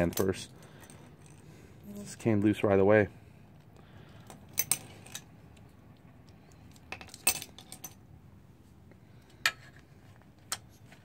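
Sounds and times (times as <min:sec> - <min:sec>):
metal parts clinking on frame: 0:00.0 - 0:01.4, 0:04.2 - 0:05.3.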